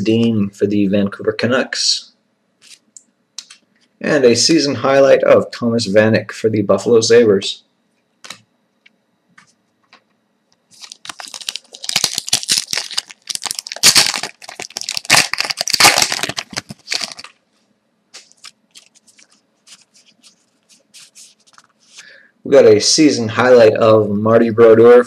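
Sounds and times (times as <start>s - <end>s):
foil pack tearing and crinkling: 10.7s - 17.4s, 18.2s - 21.7s.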